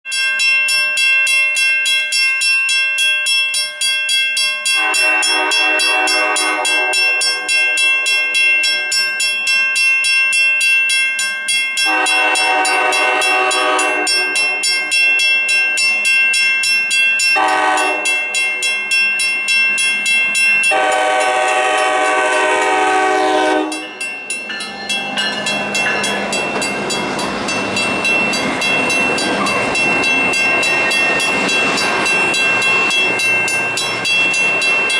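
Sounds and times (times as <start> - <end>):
crossing bell ringing: 0.0 - 34.9
passing diesel locomotives: 0.7 - 34.9
locomotive air horn blasts: 4.8 - 7.5, 11.8 - 14.6, 17.4 - 18.1, 20.7 - 23.9.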